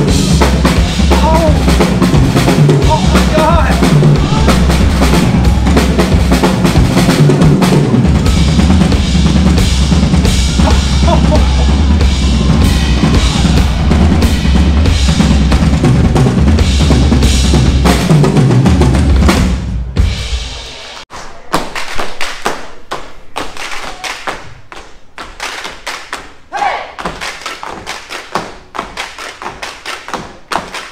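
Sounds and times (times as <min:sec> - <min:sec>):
drum kit playing loudly: 0:00.0 - 0:21.0.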